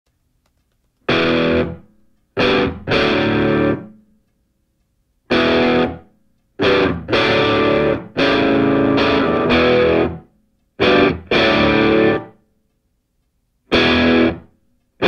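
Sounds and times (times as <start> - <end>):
distorted electric guitar chords: 1.1 - 4.0, 5.3 - 12.4, 13.7 - 14.5.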